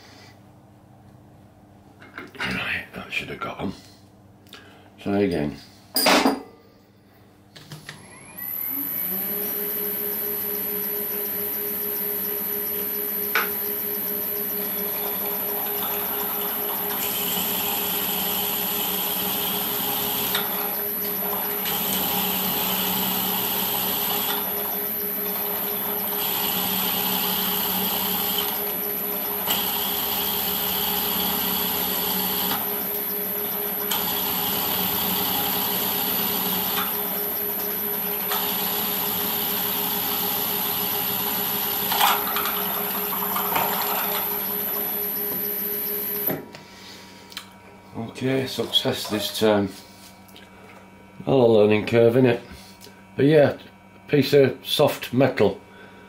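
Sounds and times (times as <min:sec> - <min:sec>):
milling spindle whine: 0:08.0 - 0:46.4
drill boring into metal: 0:14.9 - 0:42.0.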